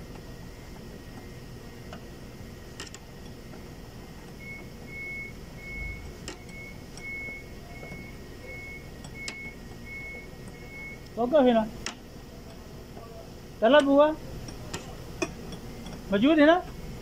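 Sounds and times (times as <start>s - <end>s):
electronic warning beeper: 4.4s - 11.3s.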